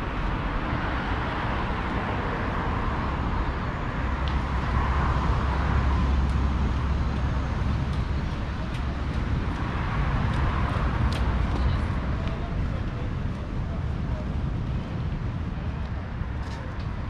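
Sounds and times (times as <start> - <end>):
road noise: 0.0 - 17.0.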